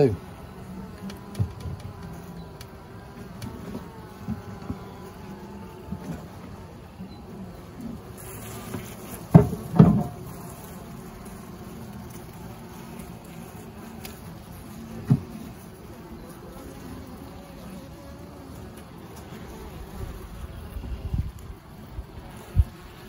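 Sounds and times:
honeybees buzzing: 0.0 - 23.0
loud knocks: 9.3 - 10.2.

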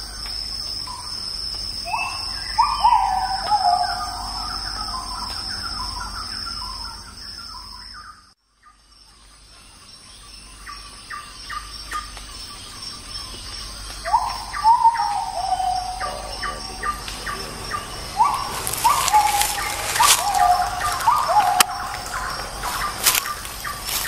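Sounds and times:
high insect drone: 0.0 - 24.0
rising and falling bird call: 1.9 - 8.1, 13.8 - 24.0
birds chirping and calling: 1.9 - 8.2, 10.0 - 24.0.

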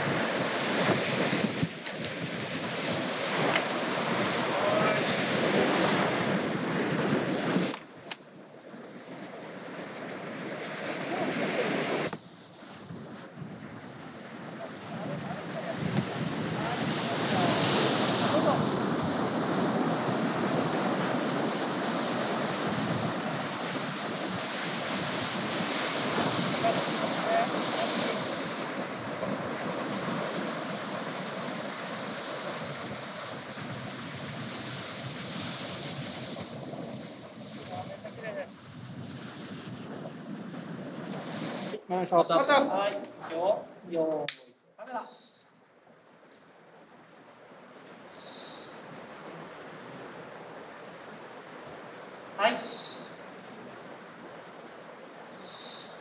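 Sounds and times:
surf washing onto beach: 0.0 - 41.8, 46.8 - 56.0
wind buffeting microphone: 0.0 - 41.8.

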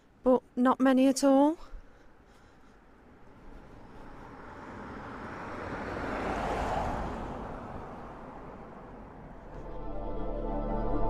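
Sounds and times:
car passing on wet road: 3.5 - 9.7.

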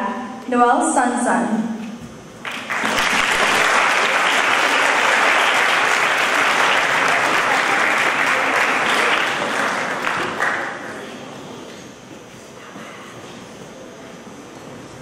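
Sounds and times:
audience applauding: 2.4 - 11.2.

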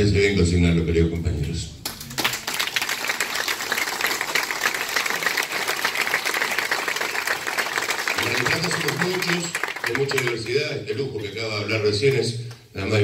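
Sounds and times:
crowd applauding: 1.8 - 10.7
person giving a speech: 8.2 - 13.0.

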